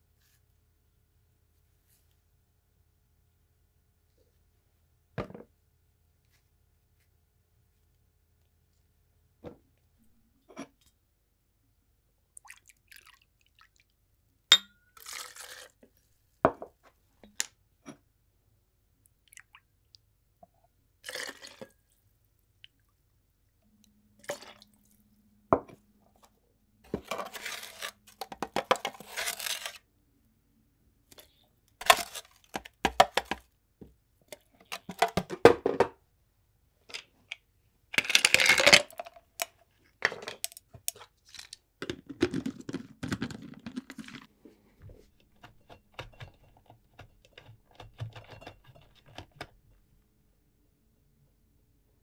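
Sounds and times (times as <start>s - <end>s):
cups and jar clinking: 14.5s - 15.5s.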